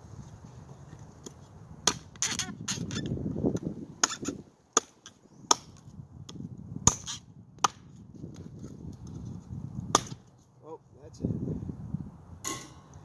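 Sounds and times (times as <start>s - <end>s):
knife chopping wood: 1.2s - 2.4s, 3.6s - 7.9s, 9.9s - 10.2s.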